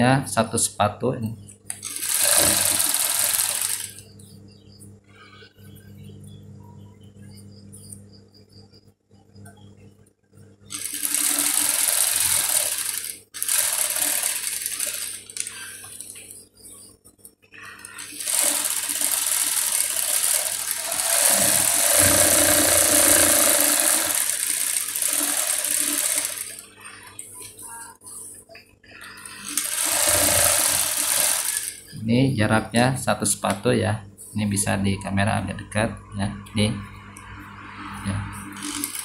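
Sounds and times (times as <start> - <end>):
sewing machine stitching: 1.7 - 4.0, 10.7 - 16.2, 17.6 - 27.1, 29.1 - 32.0, 38.5 - 39.0.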